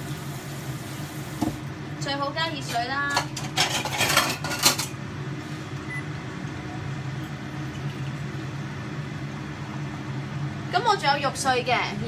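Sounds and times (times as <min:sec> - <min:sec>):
steady low hum: 0:00.0 - 0:12.0
kitchenware knocks and scrapes: 0:02.6 - 0:04.9.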